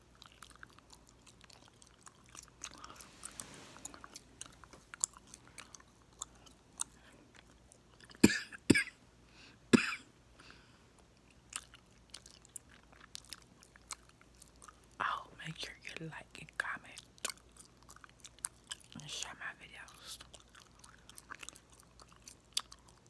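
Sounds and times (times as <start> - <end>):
gum chewing wet clicks: 0.0 - 8.3, 11.0 - 15.0, 16.6 - 23.0
gum popping: 17.0 - 19.0, 20.2 - 23.0.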